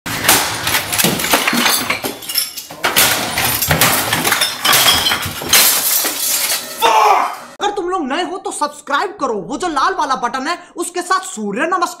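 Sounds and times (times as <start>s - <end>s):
glass bottles breaking: 0.1s - 6.8s.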